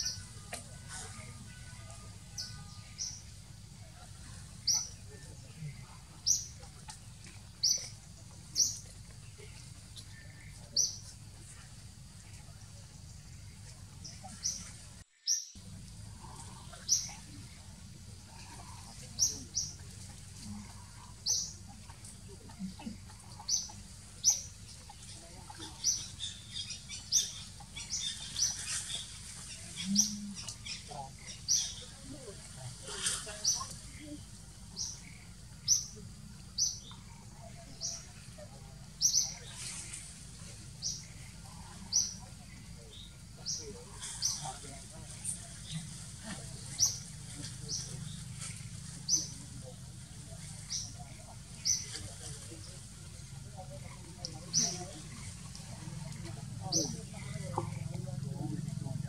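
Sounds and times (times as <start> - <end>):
faint low hum: 0.0 - 15.0, 15.6 - 59.0.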